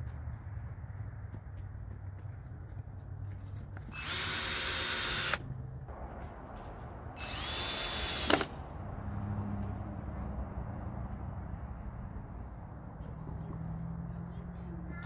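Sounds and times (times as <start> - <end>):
cordless drill whining: 4.0 - 5.4, 7.2 - 8.5
drill clutch click: 7.2 - 8.5.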